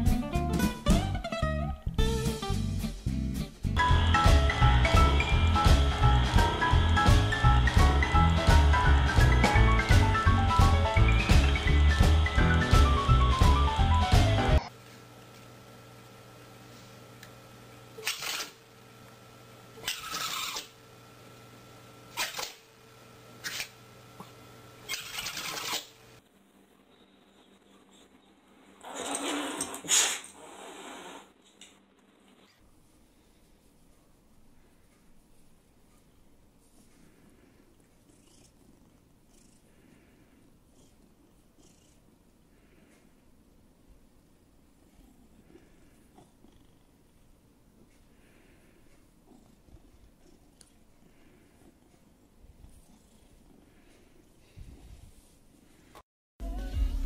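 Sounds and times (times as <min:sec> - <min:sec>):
steady low hum: 0:02.0 - 0:18.0, 0:31.8 - 0:56.0
cat hissing breathily: 0:28.8 - 0:31.3
cat purring: 0:35.9 - 0:43.5, 0:44.4 - 0:55.8.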